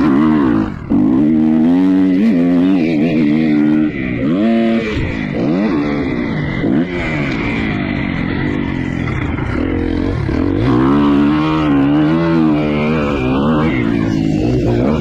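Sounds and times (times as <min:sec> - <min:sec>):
dirt bike engine revving: 0:00.0 - 0:15.0.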